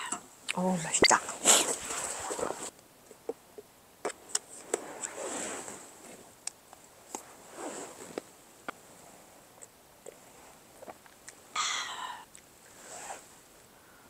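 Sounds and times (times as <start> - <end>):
soft uneven rustle: 1.2 - 2.7, 4.5 - 10.8, 12.6 - 13.6.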